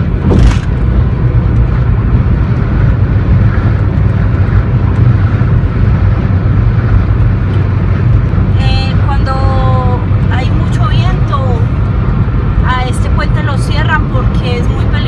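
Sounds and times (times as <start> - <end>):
car road and engine rumble: 0.0 - 15.0
brief thump: 0.2 - 0.8.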